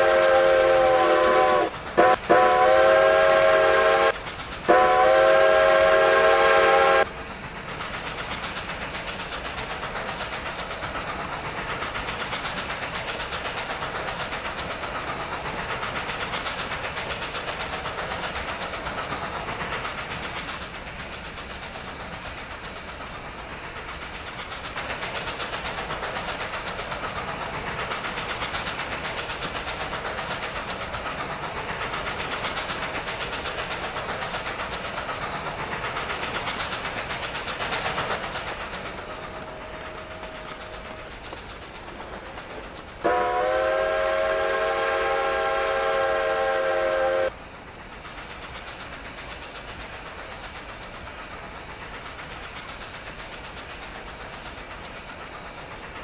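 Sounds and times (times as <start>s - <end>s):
steam whistle blast: 0.0s - 7.1s, 43.0s - 47.3s
train wheels rumbling on rails: 0.0s - 56.0s.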